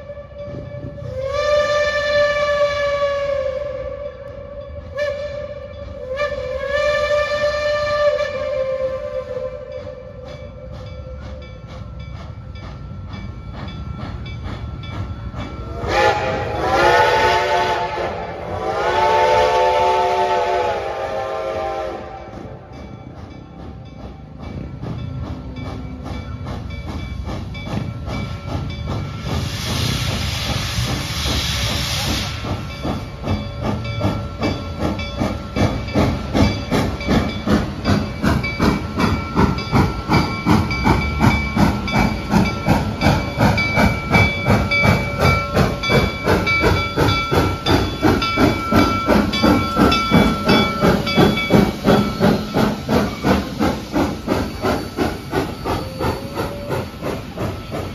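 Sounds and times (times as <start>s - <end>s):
steam locomotive exhaust chuffing: 0.0s - 57.9s
steady steam hiss: 0.5s - 57.9s
loud steam hiss blast: 28.2s - 34.2s, 34.8s - 57.9s.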